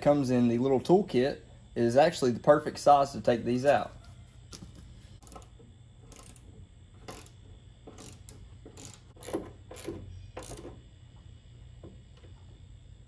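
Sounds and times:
ratchet clicking: 5.2s - 10.8s.

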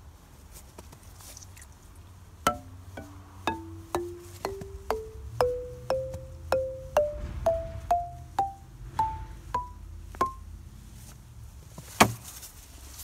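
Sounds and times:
xylophone notes climbing scale: 2.5s - 10.5s.

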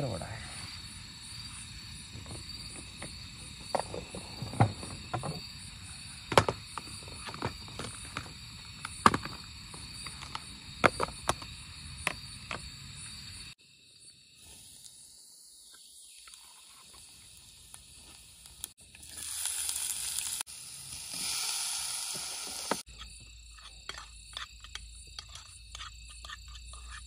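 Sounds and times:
crickets chirring: 0.0s - 27.0s
cooking gear clicks and knocks: 6.3s - 11.5s.

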